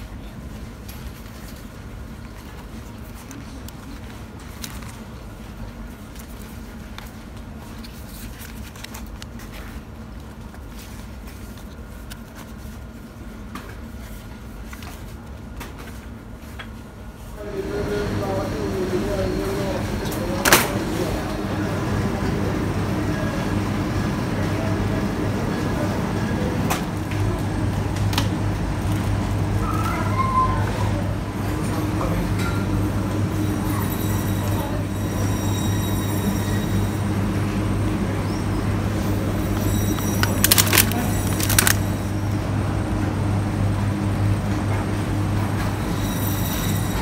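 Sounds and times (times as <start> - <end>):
indoor shop hum: 0.0 - 47.0
packets being handled: 6.0 - 12.8, 39.5 - 42.0
shopping trolley rolling on tiles: 38.7 - 42.2
trolley clicks and rattles: 39.5 - 42.0.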